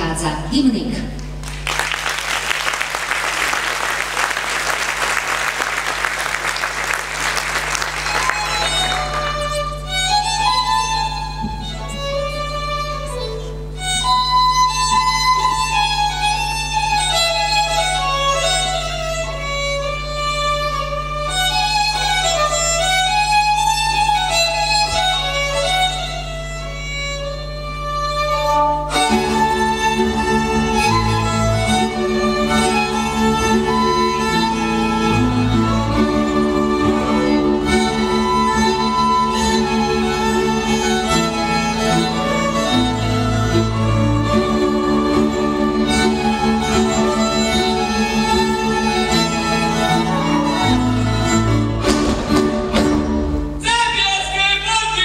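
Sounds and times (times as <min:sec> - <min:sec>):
audience applause: 0:01.3 - 0:09.9
fiddle melody: 0:02.7 - 0:54.8
folk string band playing: 0:04.2 - 0:54.1.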